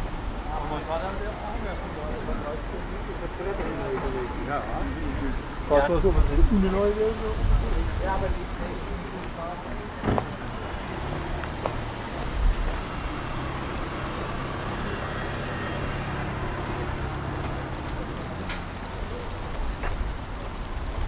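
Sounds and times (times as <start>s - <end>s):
tyre and street noise: 0.0s - 21.0s
car driving past: 9.8s - 18.9s.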